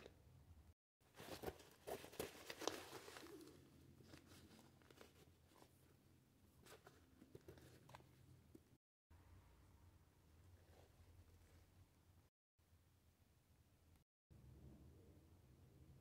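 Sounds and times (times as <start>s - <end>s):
hands rustling cord and fabric: 1.1s - 8.7s.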